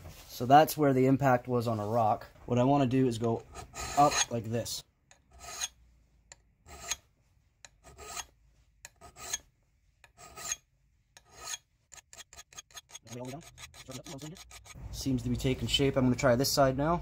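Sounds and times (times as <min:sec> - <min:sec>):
hand file rasping on steel: 0:03.4 - 0:04.3, 0:05.2 - 0:05.8, 0:06.7 - 0:07.0, 0:07.6 - 0:14.8.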